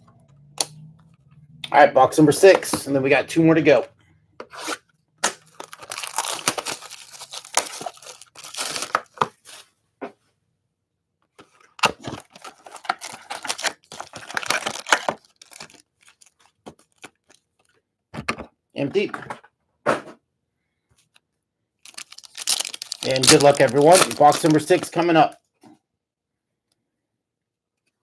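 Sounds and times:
plastic wrapping tearing and crinkling: 5.2 - 9.2, 11.6 - 17.7, 21.8 - 25.0.

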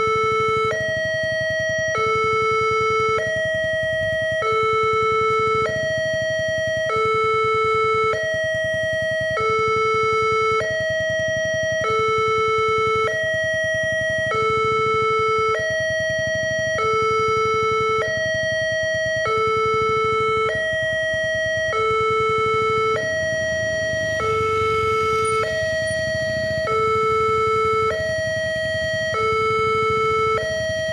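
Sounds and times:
two-tone crossing alarm: 0.0 - 30.9.

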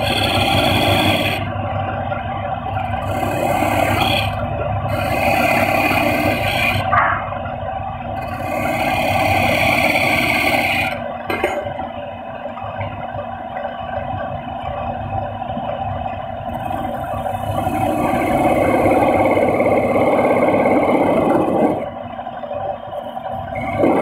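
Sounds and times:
steel scraper cutting spinning wood: 0.0 - 1.4, 3.0 - 6.9, 8.2 - 11.0
lathe drive humming: 0.0 - 24.0.

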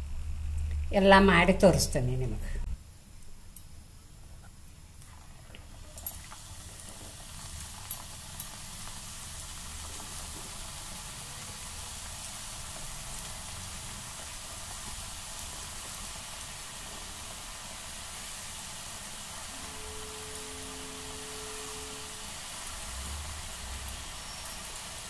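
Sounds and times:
dough sizzling in hot oil: 5.0 - 25.0.

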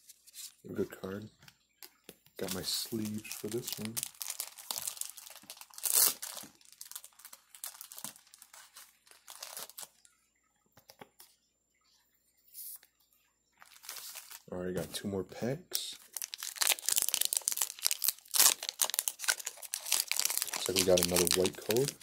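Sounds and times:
plastic card sleeves crinkling: 0.0 - 10.0, 13.6 - 14.9, 15.9 - 22.0.

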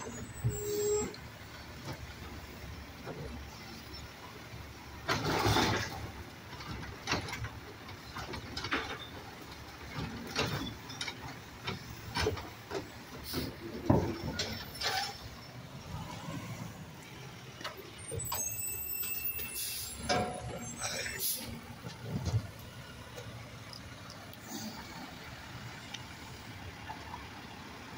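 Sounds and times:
hydraulic arm clanking: 17.0 - 23.3.

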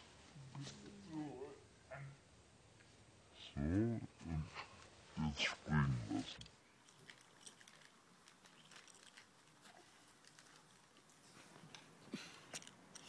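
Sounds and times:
faint light ticks and rustles: 6.2 - 13.0.

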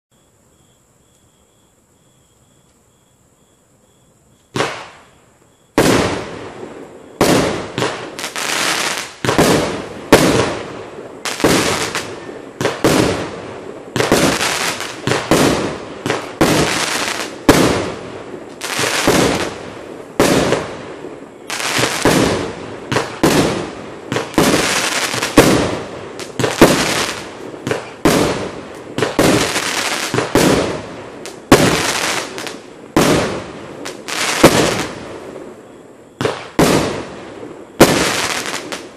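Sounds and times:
firework bangs: 4.5 - 38.9.

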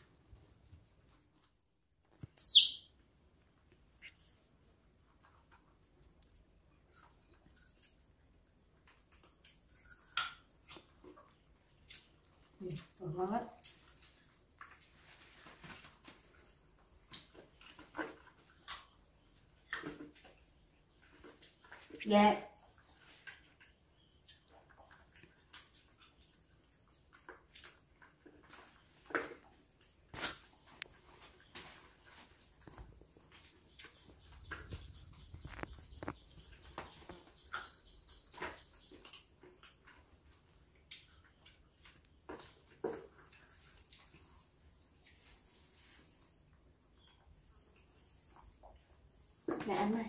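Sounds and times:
small clicks and rustles: 5.1 - 22.0
fruit being eaten crunches: 6.2 - 12.4.

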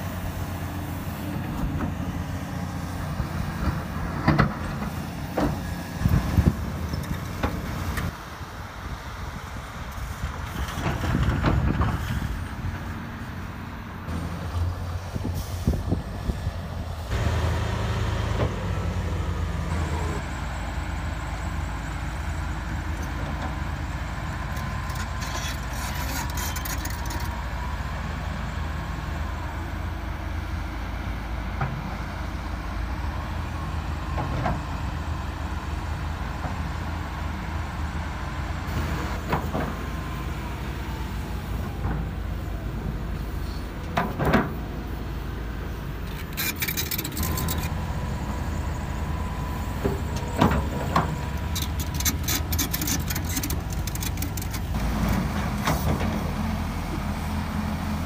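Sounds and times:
excavator diesel engine drone: 0.0 - 58.0
metal clanks: 46.1 - 47.7, 50.2 - 54.9.

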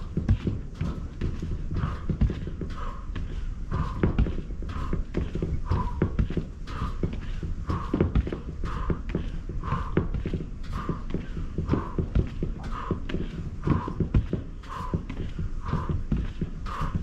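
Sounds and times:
booted feet stamping: 0.0 - 17.0.

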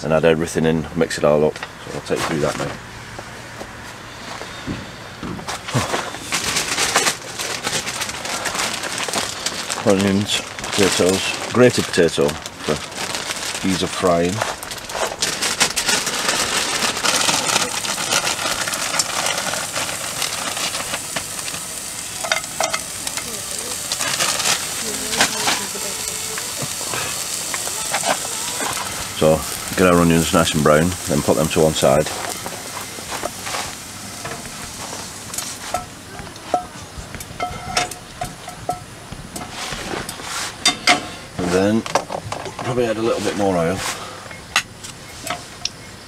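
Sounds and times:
steady hiss: 4.2 - 46.0
onions sizzling in hot oil: 5.6 - 43.9
utensil scraping frying pan: 14.4 - 36.7, 37.4 - 44.1.

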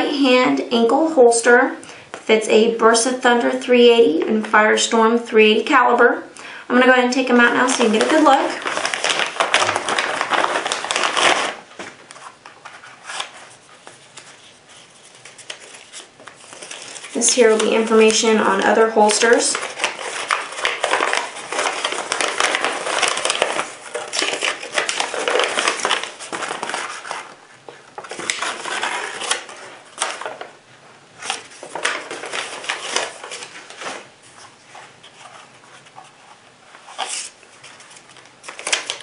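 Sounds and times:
paper rustling and crinkling: 7.4 - 30.6, 31.2 - 39.0.

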